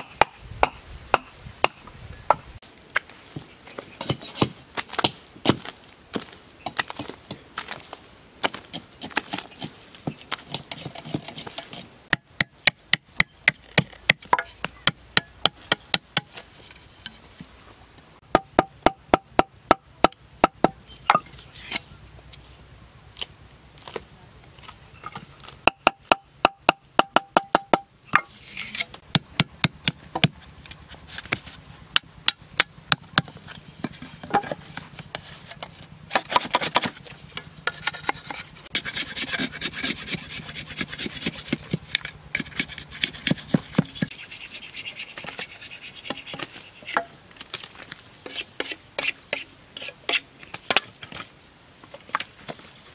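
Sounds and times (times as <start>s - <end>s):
machete chopping bamboo: 18.3s - 21.3s, 29.0s - 30.4s.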